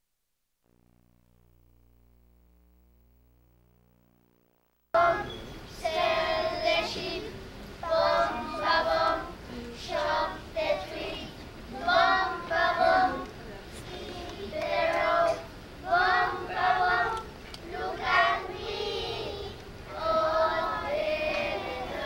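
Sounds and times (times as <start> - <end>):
children singing in unison: 5.0 - 22.0.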